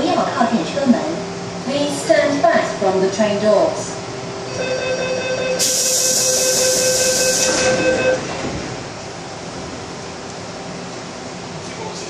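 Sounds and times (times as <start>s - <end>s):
train door warning chime: 4.5s - 8.5s
loud hiss: 5.6s - 7.6s.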